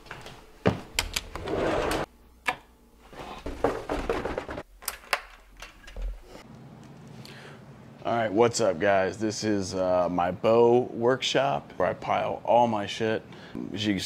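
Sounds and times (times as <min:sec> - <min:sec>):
footsteps on wooden stairs: 0:00.0 - 0:00.9.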